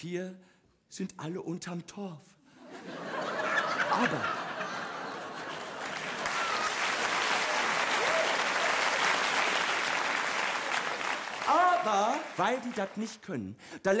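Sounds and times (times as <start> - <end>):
audience applauding: 4.6 - 13.2.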